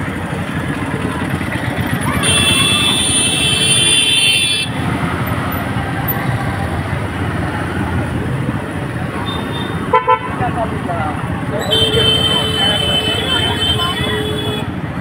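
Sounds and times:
scooters and motorbikes traffic: 0.0 - 15.0.

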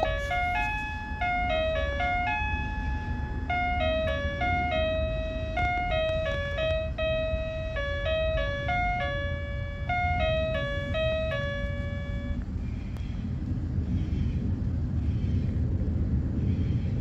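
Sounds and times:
electronic jingle: 0.0 - 12.4
steady low rumble: 0.0 - 17.0.

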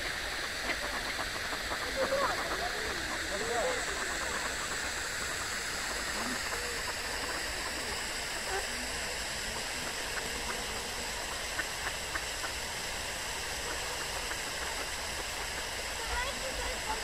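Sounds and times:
rushing water: 0.0 - 17.0.

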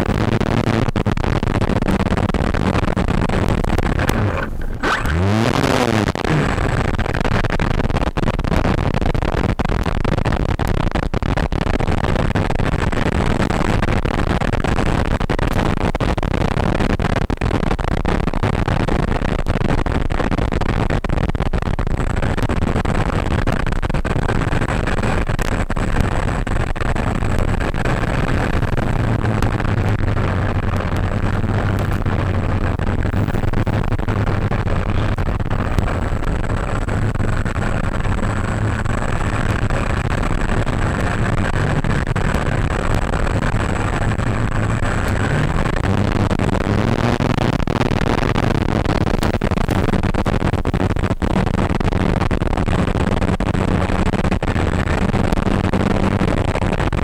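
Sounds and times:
light crackles: 0.0 - 57.0
low hum: 1.1 - 6.6, 26.1 - 51.7
thin high whine: 1.9 - 6.7, 26.7 - 51.1.

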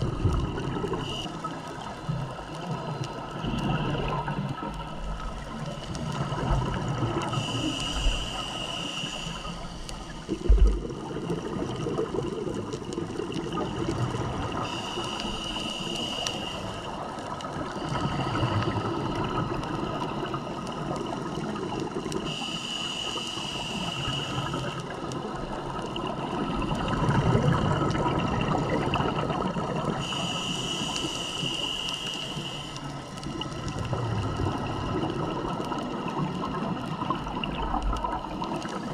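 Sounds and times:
exhaled bubbles rushing: 0.0 - 2.4, 3.1 - 7.5, 10.0 - 14.8, 24.4 - 30.1, 33.2 - 38.9
regulator hissing inhale: 7.2 - 10.5, 14.5 - 19.4, 22.2 - 25.0, 30.0 - 33.3.

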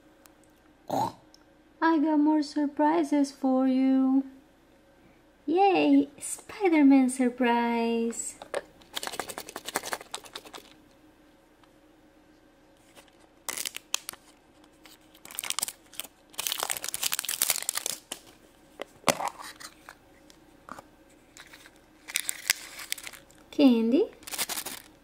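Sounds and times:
plastic wrapping crinkling and tearing: 8.9 - 10.8, 12.8 - 18.4, 21.3 - 23.4, 24.1 - 25.0.

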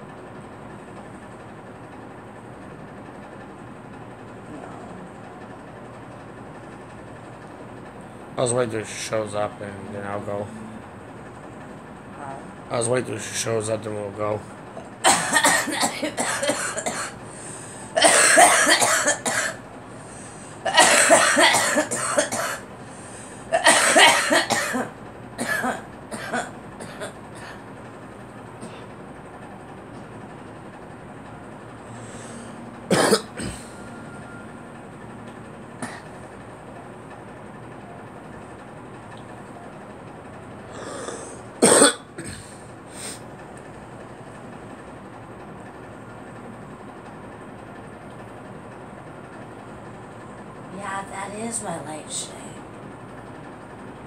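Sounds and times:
woman coughing: 14.8 - 17.2, 18.0 - 19.6, 20.7 - 22.6, 23.5 - 27.6, 32.9 - 33.7, 41.6 - 42.5
short breath: 17.3 - 17.9.

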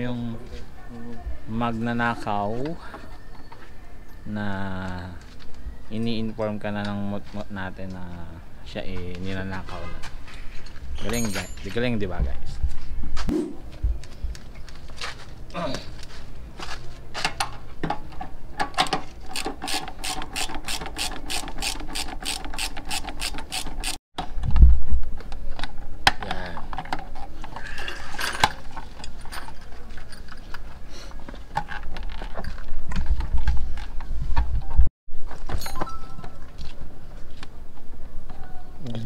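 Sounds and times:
ratchet wrench clicking: 19.3 - 24.0.

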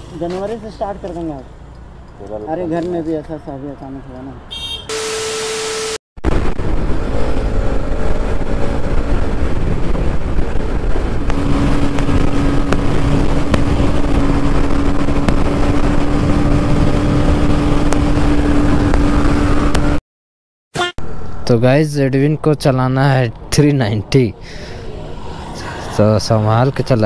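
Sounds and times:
steady beep: 4.9 - 6.0
static glitch noise: 4.9 - 6.5
wind rushing over microphone: 6.2 - 20.0
motorcycle engine cruising: 6.4 - 20.0.

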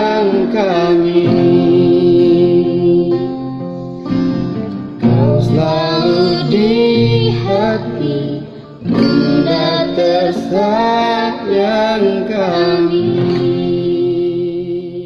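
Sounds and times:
acoustic guitar: 0.0 - 15.0
woman singing a slow ballad: 5.1 - 14.6.

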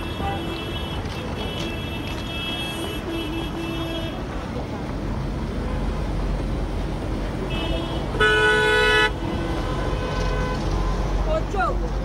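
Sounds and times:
low rumble of street traffic: 0.0 - 12.0
car horn blast: 7.5 - 9.2.

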